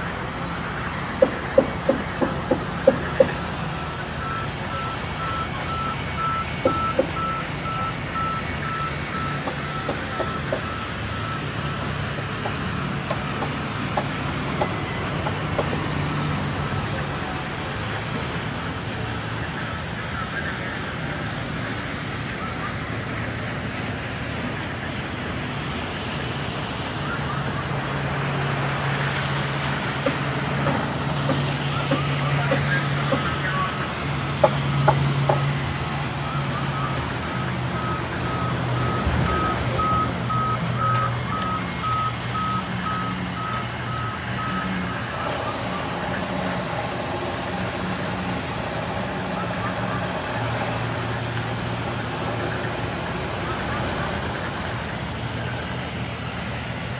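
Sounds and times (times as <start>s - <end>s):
scattered knocks: 1.1s - 3.4s, 9.4s - 10.7s, 12.4s - 15.9s, 30.0s - 33.4s, 34.3s - 35.6s.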